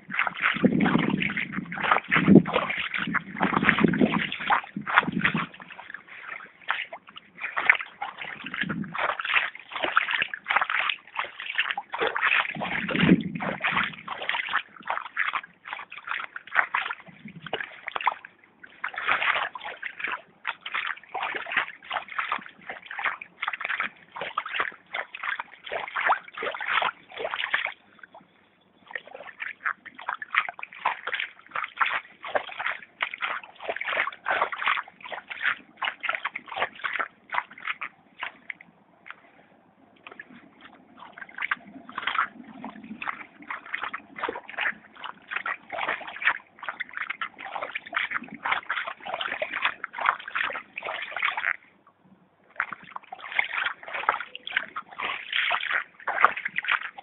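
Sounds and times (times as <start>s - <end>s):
footsteps splashing in water: 0.0s - 57.0s.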